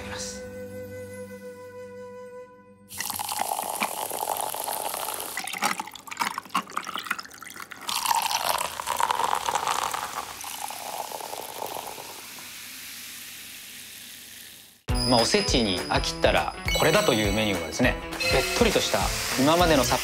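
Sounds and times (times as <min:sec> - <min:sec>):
sparkling water pouring over ice: 0:02.9 - 0:14.9, 0:18.3 - 0:20.0.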